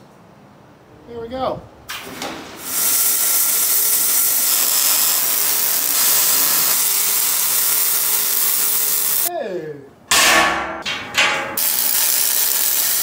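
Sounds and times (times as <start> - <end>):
arc welder hissing: 2.6 - 9.3, 11.6 - 13.0.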